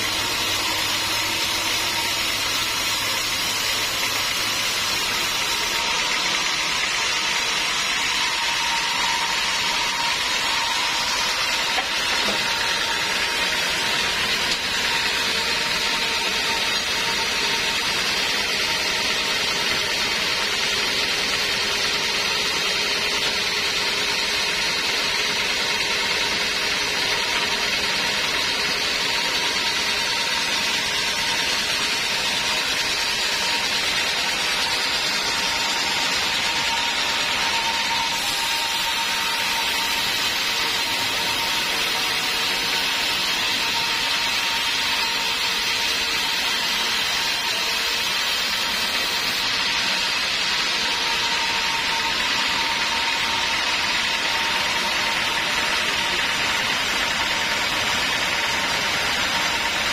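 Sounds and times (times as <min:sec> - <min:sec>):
band saw cutting log: 0:00.0 - 0:59.9.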